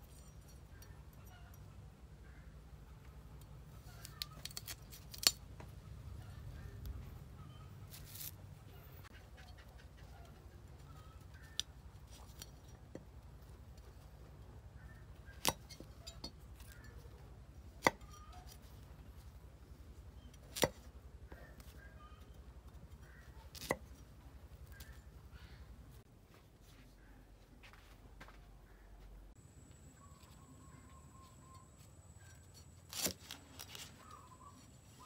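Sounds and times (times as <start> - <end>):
knife trimming broccoli florets: 32.2 - 34.6.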